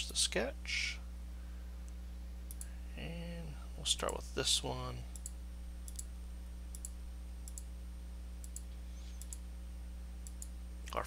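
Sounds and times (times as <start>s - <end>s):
steady low hum: 0.0s - 11.0s
computer mouse clicking: 5.1s - 6.1s, 6.7s - 7.7s, 10.2s - 10.5s.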